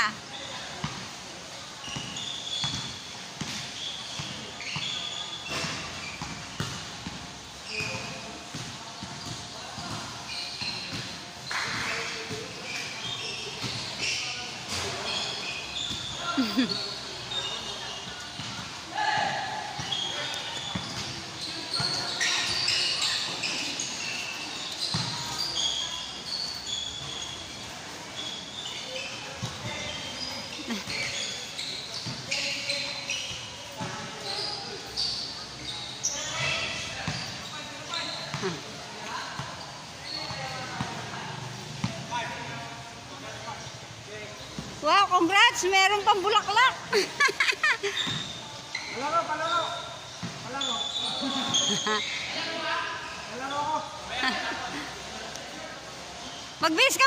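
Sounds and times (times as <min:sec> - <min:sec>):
sneakers squeaking on floor: 0:00.0 - 0:57.0
short high-pitched squeaks: 0:01.8 - 0:03.1, 0:03.8 - 0:06.2, 0:19.8 - 0:38.3, 0:47.9 - 0:52.5
basketball bouncing on court: 0:02.0 - 0:04.9, 0:05.5 - 0:12.6, 0:20.6 - 0:23.2, 0:24.7 - 0:25.7, 0:29.3 - 0:31.2, 0:41.8 - 0:42.1, 0:48.0 - 0:48.4.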